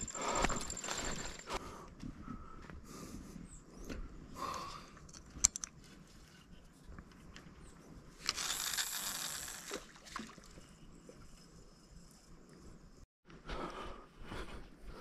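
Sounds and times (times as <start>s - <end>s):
fishing reel click: 8.2s - 9.8s
fishing reel whirring: 8.2s - 10.0s.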